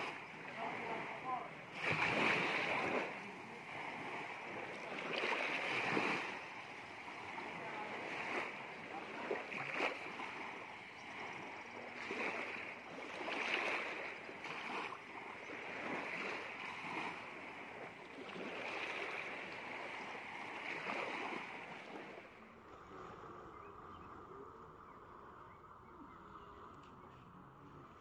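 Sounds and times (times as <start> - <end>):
waves washing on sandy beach: 0.0 - 23.3.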